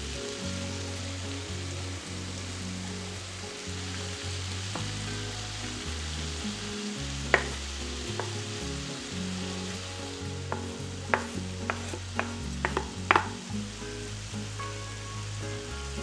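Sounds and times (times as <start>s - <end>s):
food sizzling in a frying pan: 0.0s - 16.0s
wood knocking against board and pan: 7.3s - 7.6s, 10.5s - 13.4s.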